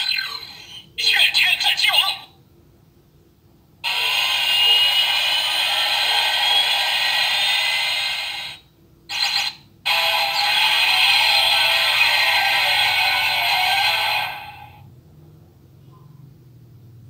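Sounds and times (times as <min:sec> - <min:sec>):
toy electronic sound effects: 0:00.0 - 0:02.2, 0:03.8 - 0:14.8.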